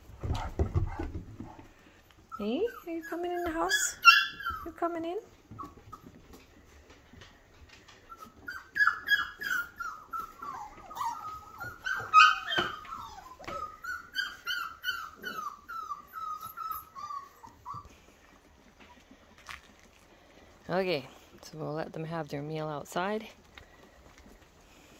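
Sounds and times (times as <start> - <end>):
puppies whining and yipping: 0.8 - 7.0, 7.6 - 19.4.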